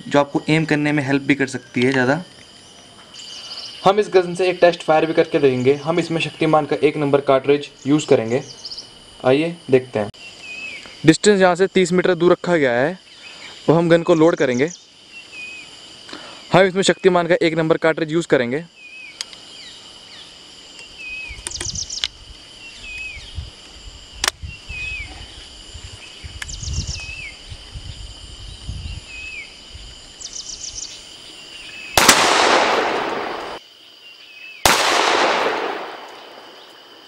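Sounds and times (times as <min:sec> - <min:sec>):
bird chirping: 0:00.0 - 0:06.9, 0:07.5 - 0:09.0, 0:10.2 - 0:11.1, 0:13.0 - 0:15.7, 0:18.7 - 0:23.5, 0:24.4 - 0:37.0
insects droning: 0:00.0 - 0:37.0
loud shotgun shot: 0:32.0 - 0:33.6, 0:34.6 - 0:36.7.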